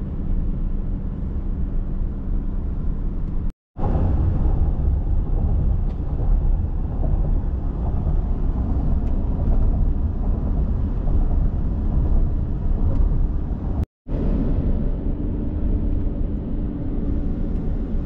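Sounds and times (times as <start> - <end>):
road and engine rumble in cabin: 0.0 - 18.0.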